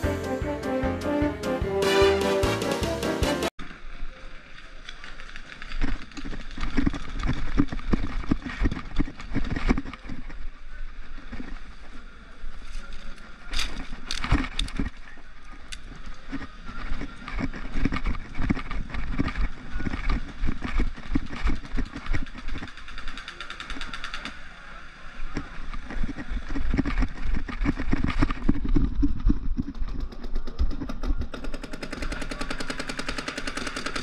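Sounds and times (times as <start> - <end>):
rustling and knocking movement: 5.1 - 12.0, 12.6 - 24.2, 25.4 - 32.3.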